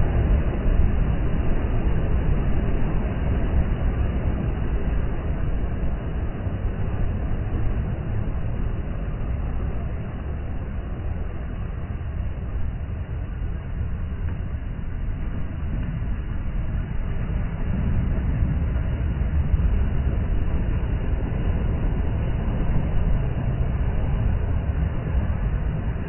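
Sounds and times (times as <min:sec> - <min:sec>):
waves washing up a beach: 0:14.8 - 0:26.0.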